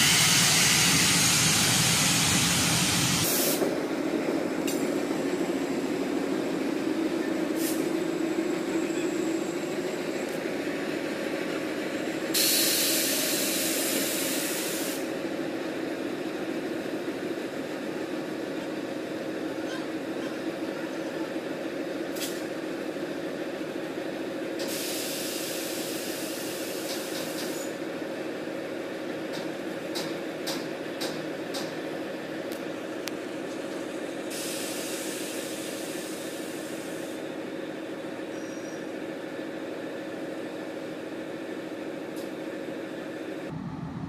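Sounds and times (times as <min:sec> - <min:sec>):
loud air hiss: 0:00.0 - 0:03.7, 0:07.5 - 0:07.9, 0:12.3 - 0:15.2, 0:24.6 - 0:27.8, 0:34.3 - 0:37.2
diesel locomotive idling: 0:00.0 - 0:44.0.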